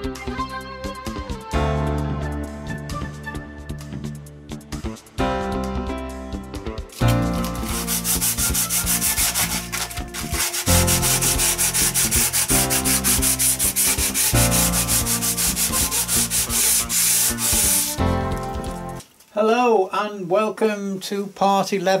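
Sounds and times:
sanding block rubbing: 7.3s - 18.0s.

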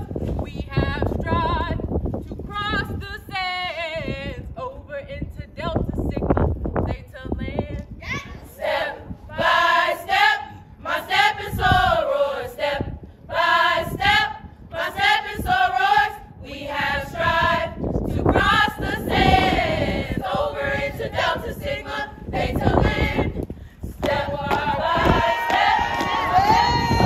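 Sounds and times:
women chanting in unison: 24.0s - 26.8s.

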